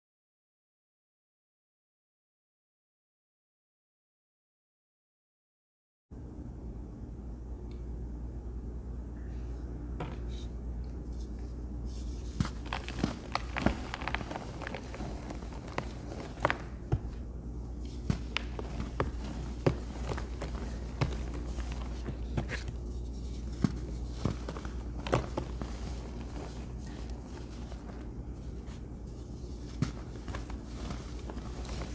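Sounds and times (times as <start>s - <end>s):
pressed powder crunching: 11.9s - 31.9s.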